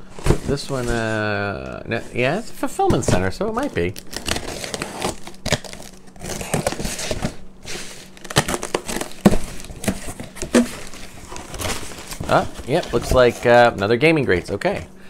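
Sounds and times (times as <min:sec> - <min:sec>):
tape and cardboard tearing: 0:03.6 - 0:13.0
box cutter slitting tape: 0:04.1 - 0:07.3, 0:08.2 - 0:12.2
box flaps snapping open: 0:08.2 - 0:12.5.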